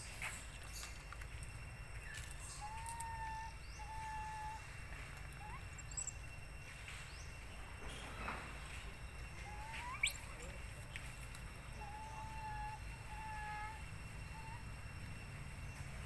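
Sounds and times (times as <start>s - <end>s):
whistled animal calls: 2.1s - 6.2s, 9.3s - 10.8s, 11.6s - 16.0s.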